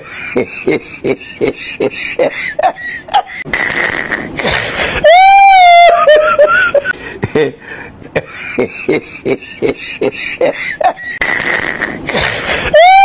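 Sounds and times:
person chuckling: 0.0 - 5.1, 8.2 - 13.0
person squealing: 3.7 - 6.2, 11.2 - 13.0.

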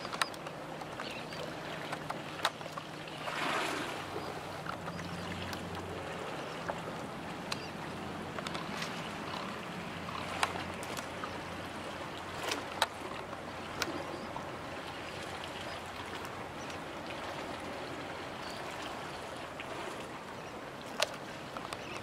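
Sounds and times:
small waves lapping: 0.0 - 22.0.

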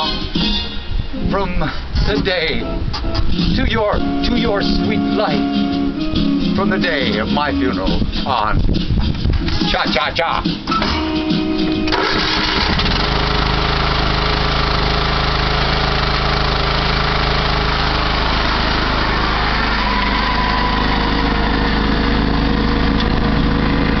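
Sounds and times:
riding lawn mower engine: 11.0 - 24.0.

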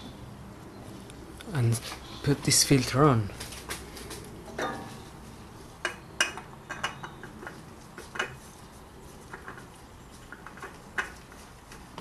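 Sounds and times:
light metal clicks and knocks: 5.8 - 8.4.

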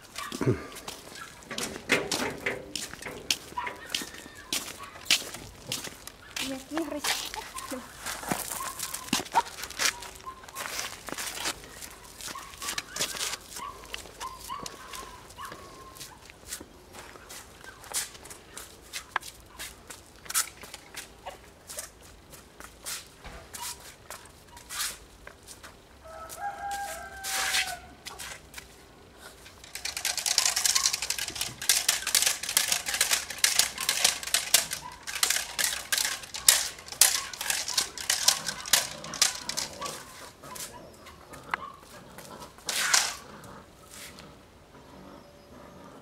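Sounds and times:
rag flapping and scuffling: 0.0 - 15.4, 27.5 - 40.8, 42.5 - 43.2
rooster crowing: 26.0 - 28.0.

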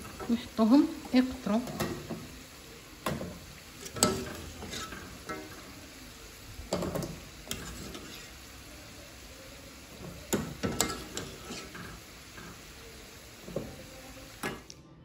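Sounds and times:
pastries sizzling in hot oil: 0.0 - 14.8
metal spatula clinking: 3.8 - 5.6, 6.7 - 8.3, 10.3 - 12.0.

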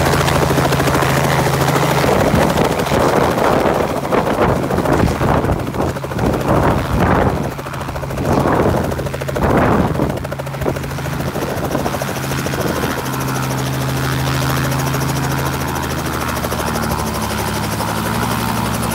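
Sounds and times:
helicopter engine and rotor humming: 0.0 - 18.9
helicopter rotor wash: 0.0 - 18.9.

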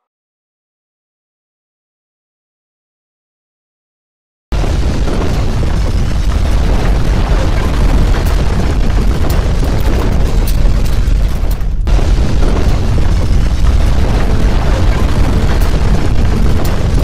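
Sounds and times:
deep earthquake rumbling: 4.5 - 17.0
crackles: 4.6 - 17.0.

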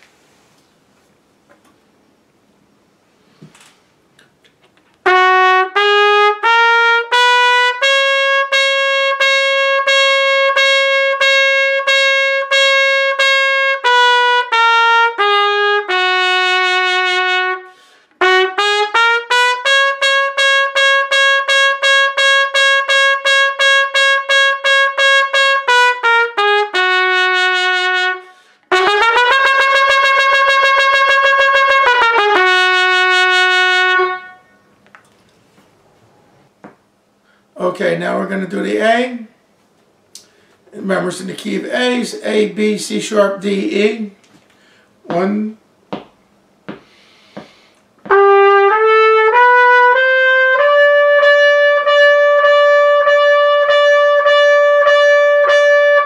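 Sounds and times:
trumpet playing tongued notes: 5.0 - 34.6, 48.0 - 56.0.

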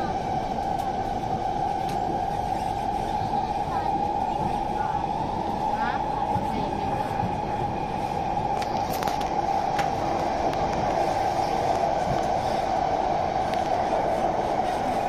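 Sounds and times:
train running on rails: 0.0 - 15.0.

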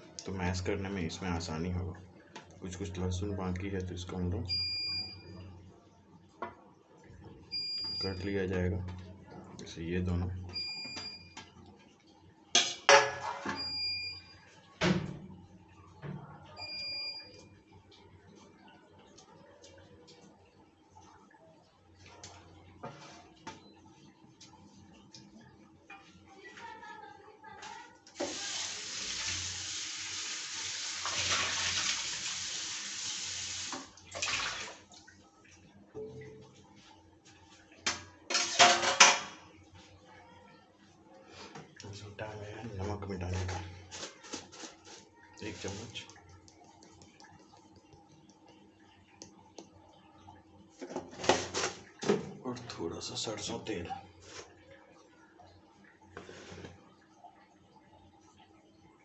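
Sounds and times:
water running from a tap: 28.0 - 35.2
clattering splashes: 33.7 - 35.0.

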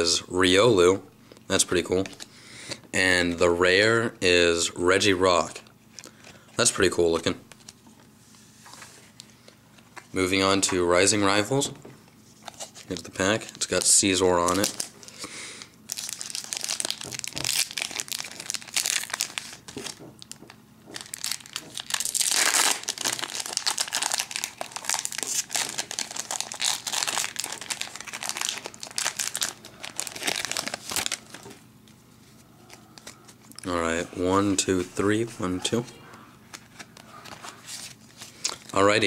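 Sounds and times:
foil pack crinkling: 12.4 - 15.3, 15.9 - 31.6.

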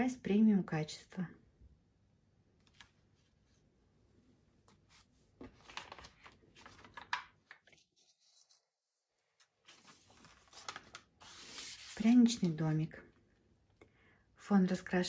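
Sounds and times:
paper rustling: 4.6 - 12.6.

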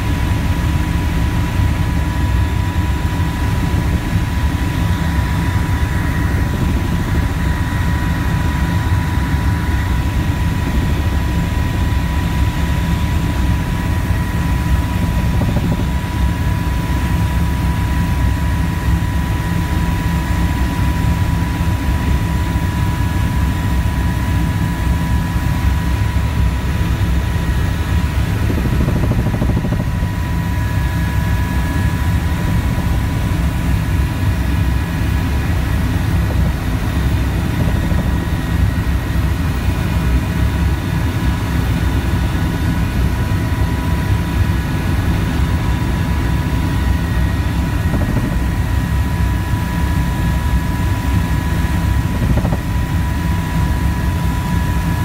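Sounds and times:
constant high whine: 0.0 - 55.0
helicopter engine and rotor drone: 0.0 - 55.0.

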